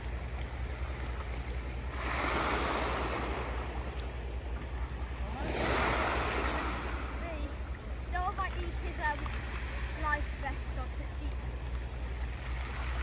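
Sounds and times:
waves washing onto pebble beach: 0:05.3 - 0:07.5.

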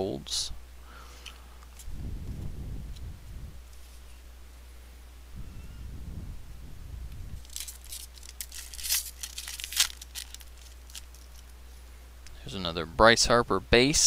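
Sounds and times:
foil wrapper tearing and crinkling: 0:07.4 - 0:11.6.

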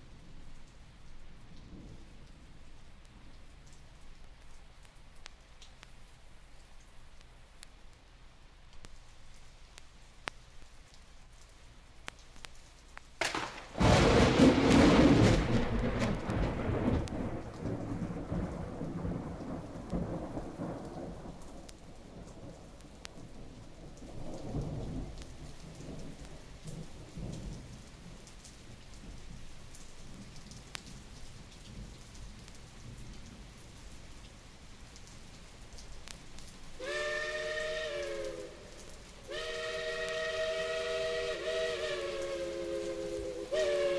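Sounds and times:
steady rain: 0:00.0 - 0:43.9
thunder rumbling: 0:13.2 - 0:28.2.

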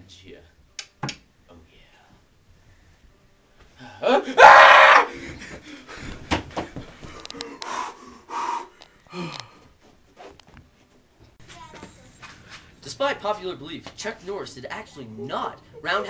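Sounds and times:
person gasping: 0:03.8 - 0:04.4, 0:05.1 - 0:09.7.

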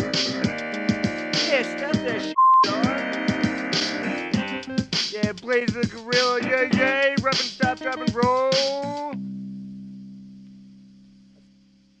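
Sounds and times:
low held backing track chord: 0:00.0 - 0:12.0.

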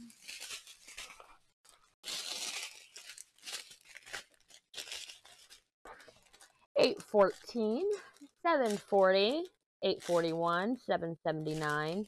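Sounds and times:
plastic bags crinkling: 0:00.0 - 0:10.6, 0:11.4 - 0:12.0.

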